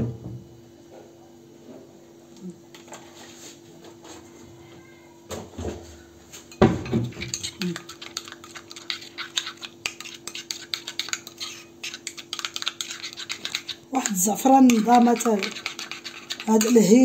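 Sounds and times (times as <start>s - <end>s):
fork whisking in ceramic bowl: 6.8s - 17.0s.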